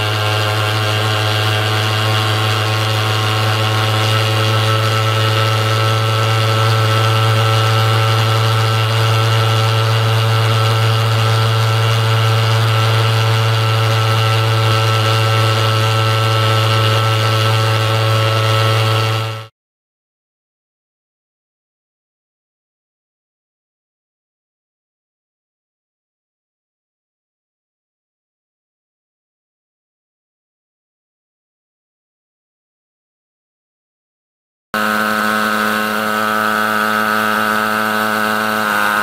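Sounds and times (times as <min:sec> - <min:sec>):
thermal fogger buzzing: 0:00.0 - 0:19.5, 0:34.8 - 0:39.0.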